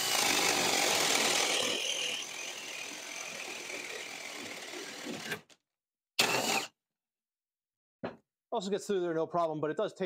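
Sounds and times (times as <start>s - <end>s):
cordless drill boring into wood: 0.0s - 5.5s, 6.2s - 6.7s.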